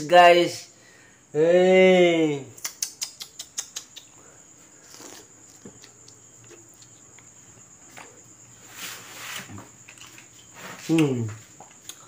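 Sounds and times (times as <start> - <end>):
cricket trill: 0.0 - 12.0
person chewing wetly: 4.8 - 8.1, 11.0 - 12.0.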